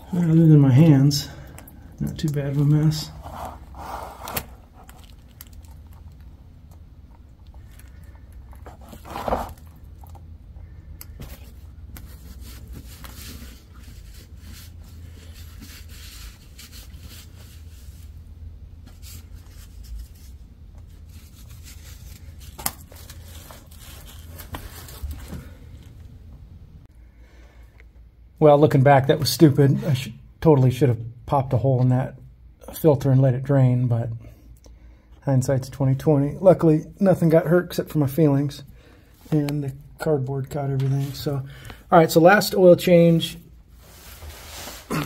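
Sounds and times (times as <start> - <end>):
handling rustling and scraping: 0.2 - 6.3, 7.1 - 10.3, 11.0 - 26.1, 43.6 - 45.0.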